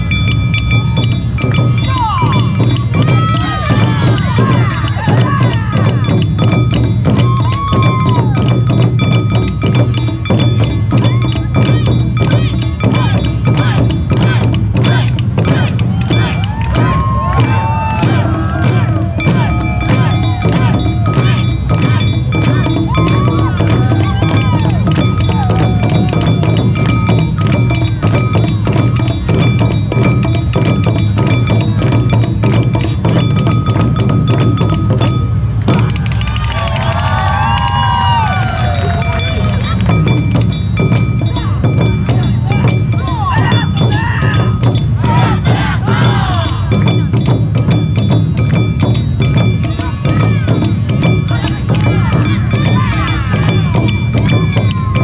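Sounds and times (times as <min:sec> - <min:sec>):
small hand gong clanging: 0:00.0 - 0:36.1
taiko drums beating: 0:00.0 - 0:55.0
metal hand gong ringing: 0:18.0 - 0:35.8.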